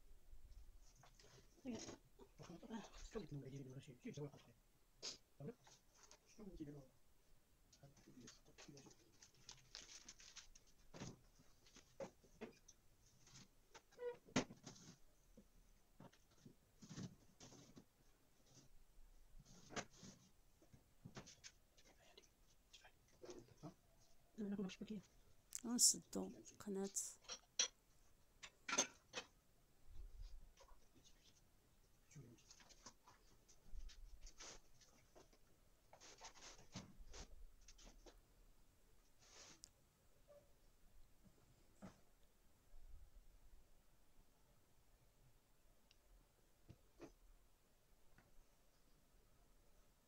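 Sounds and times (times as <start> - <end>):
pastry dough rustling: 8.2 - 12.0.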